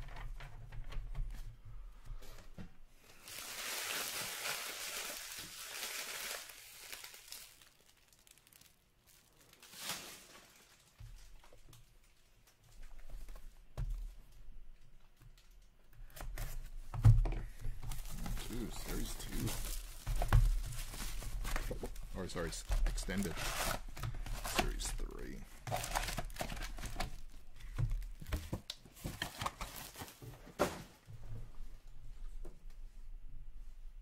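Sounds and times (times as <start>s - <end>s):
plastic wrapping tearing and crinkling: 3.2s - 12.3s, 17.8s - 30.3s.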